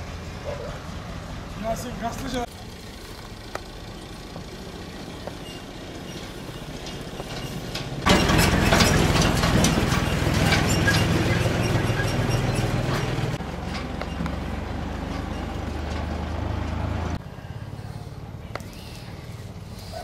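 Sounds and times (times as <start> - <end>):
vehicle engine running: 0.0 - 20.0.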